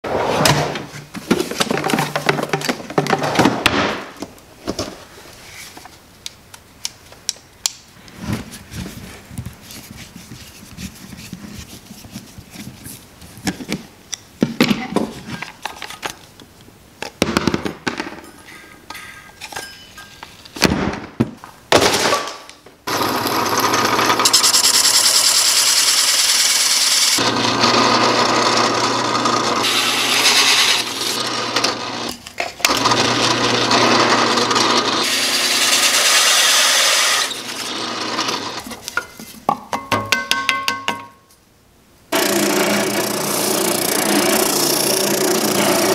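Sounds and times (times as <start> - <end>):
hole saw cutting plywood: 22.9 - 32.1, 32.7 - 38.6, 42.1 - 45.9
drill press motor hum: 42.2 - 45.9.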